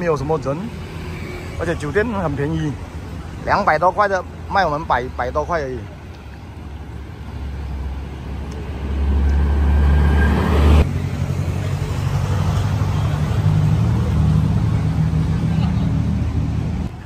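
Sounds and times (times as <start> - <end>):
traffic rumble: 0.0 - 17.0
vehicle engine rumble: 0.0 - 17.0.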